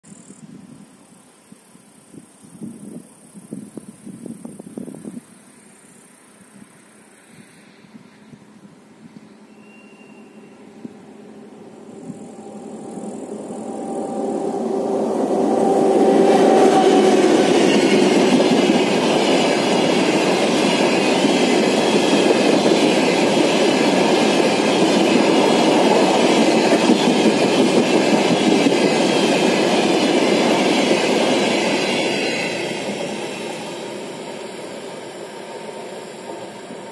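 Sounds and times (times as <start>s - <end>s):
freight train wheels rumbling on rails: 10.2s - 36.9s.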